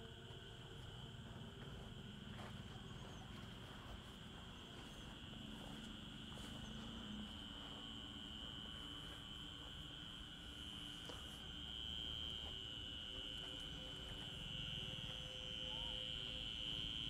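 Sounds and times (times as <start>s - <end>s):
crickets trilling: 0.0s - 17.0s
footsteps through weeds: 2.3s - 7.7s.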